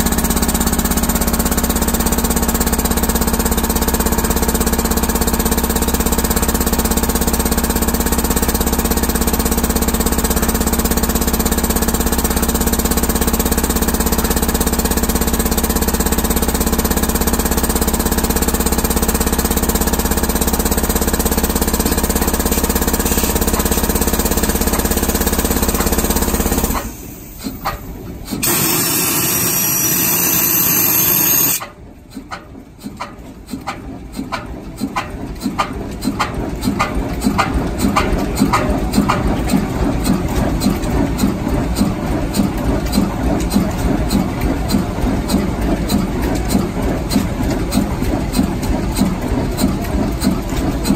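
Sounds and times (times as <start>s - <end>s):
air compressor pounding: 0.0s - 50.9s
rising whistle: 28.6s - 31.6s.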